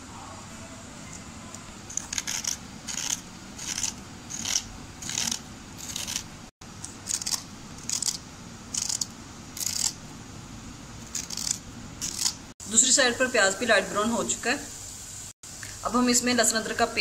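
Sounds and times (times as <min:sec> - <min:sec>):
knife scraping gourd skin: 0:01.9 - 0:10.0, 0:11.0 - 0:12.4.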